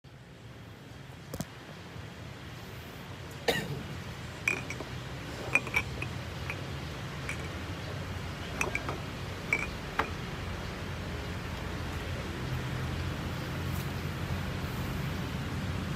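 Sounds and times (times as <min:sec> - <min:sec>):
steady low hum: 0:00.1 - 0:15.9
cups and utensils clinking: 0:04.4 - 0:07.7, 0:08.4 - 0:10.3.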